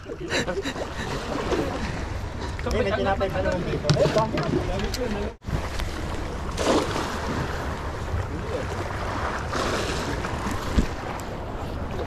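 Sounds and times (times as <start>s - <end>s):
waves washing: 0.0s - 12.0s
wind on microphone: 3.8s - 12.0s.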